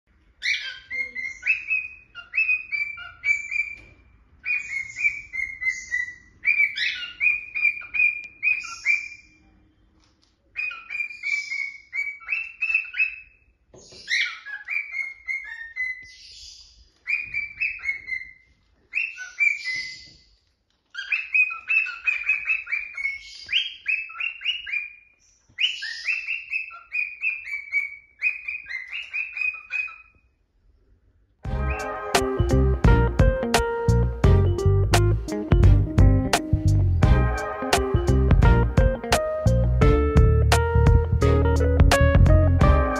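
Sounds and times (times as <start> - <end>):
cockatiel whistling: 4.4 - 9.4, 17.1 - 20.1, 21.0 - 25.0, 25.6 - 30.1.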